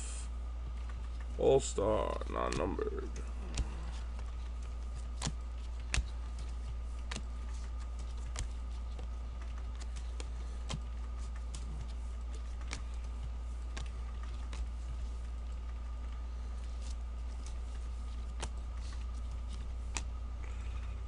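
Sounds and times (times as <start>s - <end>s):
low electrical hum: 0.0s - 21.0s
trading cards clicking and tapping: 0.6s - 20.8s.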